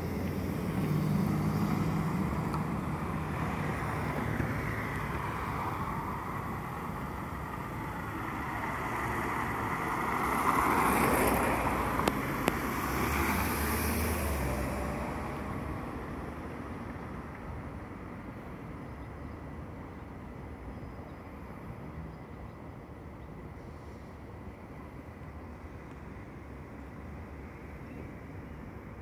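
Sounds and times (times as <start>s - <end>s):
vehicle passing: 0.0s - 16.6s
street traffic: 0.0s - 29.0s.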